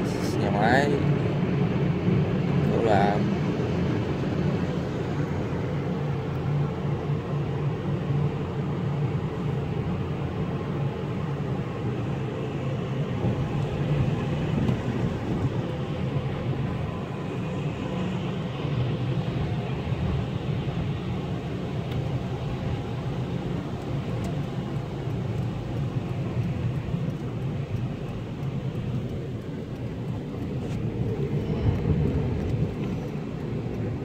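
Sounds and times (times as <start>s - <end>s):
car driving on wet road: 0.0s - 34.0s.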